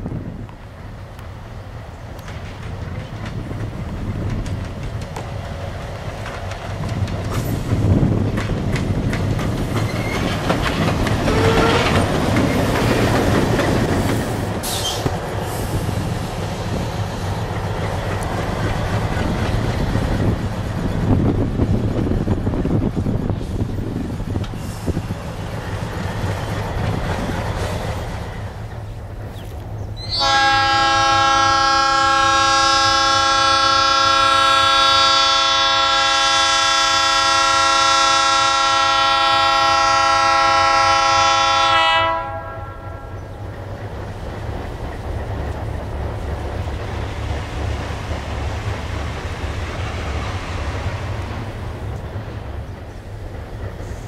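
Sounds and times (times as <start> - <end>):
low rumble of locomotives: 0.0 - 54.0
wind: 0.0 - 54.0
locomotive air horn blast: 11.2 - 12.1, 30.1 - 43.1.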